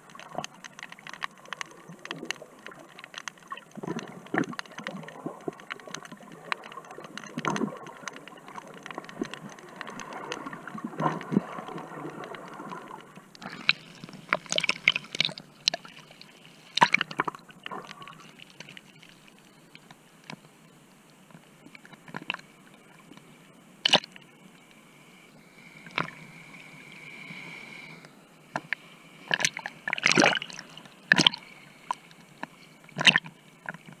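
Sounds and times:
water sloshing: 0:28.6 - 0:34.0.

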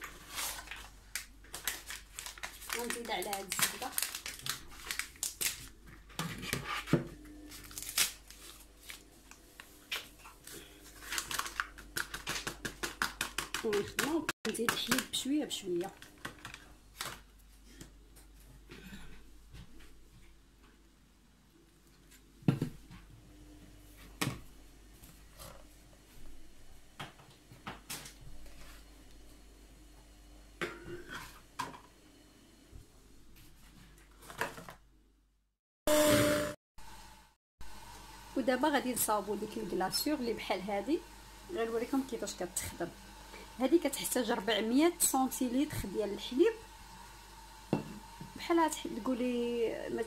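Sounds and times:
paper sachet crinkling: 0:00.1 - 0:05.8, 0:07.5 - 0:09.4, 0:10.0 - 0:13.1.

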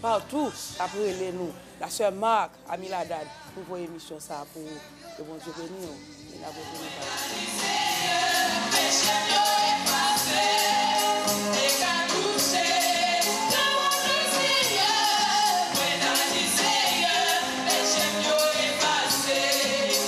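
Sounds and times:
women singing gospel: 0:00.0 - 0:02.1, 0:02.7 - 0:20.0.

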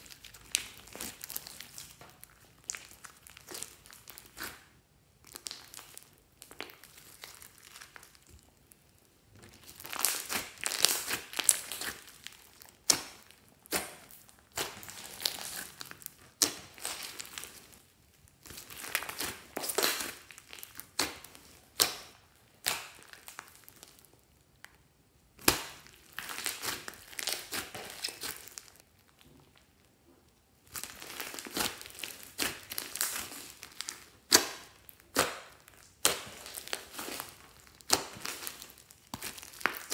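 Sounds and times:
slime squishing and crackling: 0:00.0 - 0:30.0, 0:30.6 - 0:39.9
sharp slime pops: 0:25.4 - 0:26.8, 0:34.3 - 0:37.2.

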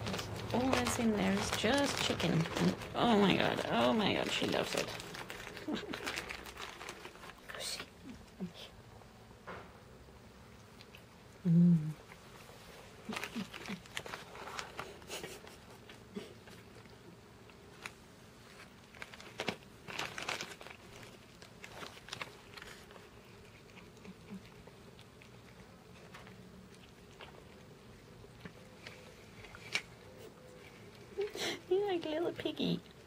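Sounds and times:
cats crunching treats: 0:00.0 - 0:08.7, 0:10.4 - 0:33.0.

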